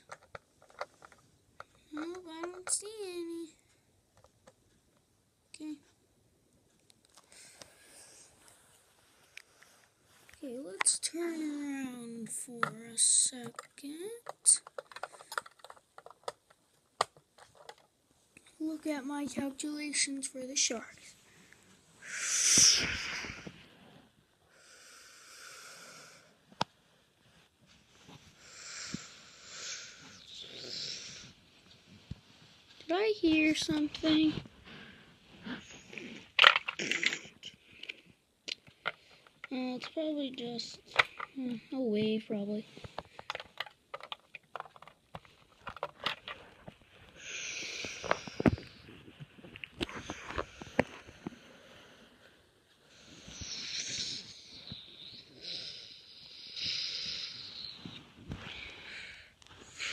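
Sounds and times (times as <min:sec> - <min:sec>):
plastic toy pieces clicking: 0:00.0 - 0:02.9, 0:13.4 - 0:17.9, 0:36.4 - 0:38.0, 0:43.0 - 0:46.4
person hissing with mouth: 0:22.0 - 0:23.4, 0:53.2 - 0:54.5, 0:55.4 - 0:57.9.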